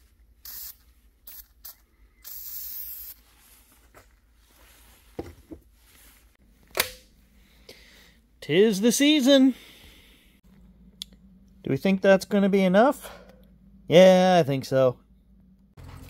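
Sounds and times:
aerosol spray can hissing: 0:00.4 - 0:03.2.

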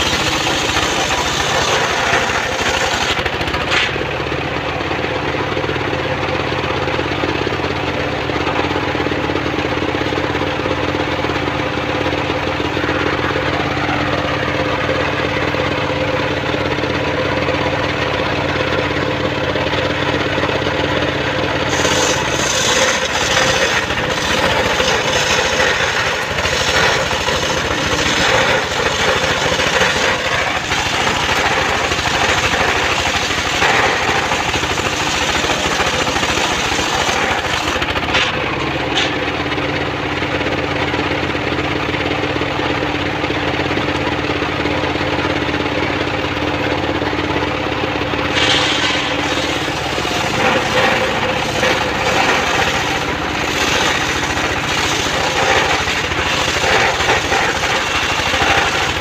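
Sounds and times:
saw cutting through log: 0:00.0 - 0:04.1, 0:21.0 - 0:39.3, 0:48.2 - 0:59.0
sawmill engine running: 0:00.0 - 0:59.0.

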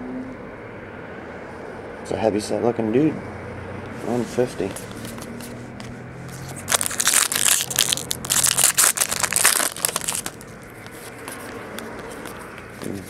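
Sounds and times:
foil wrapper crinkling and tearing: 0:06.3 - 0:11.4.

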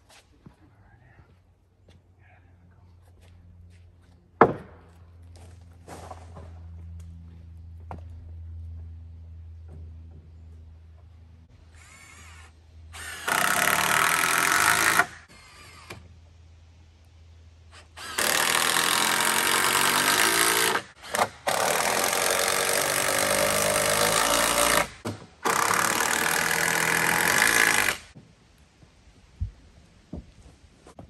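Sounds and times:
power drill driving screws into wood: 0:11.8 - 0:16.0, 0:17.8 - 0:28.2.

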